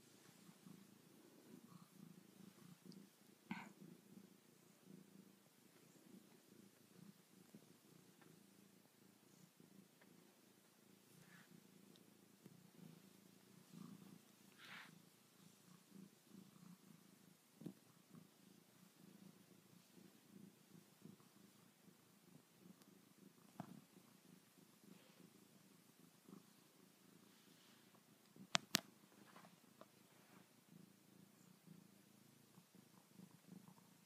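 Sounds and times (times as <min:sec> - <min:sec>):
cat purring: 0:00.0 - 0:34.0.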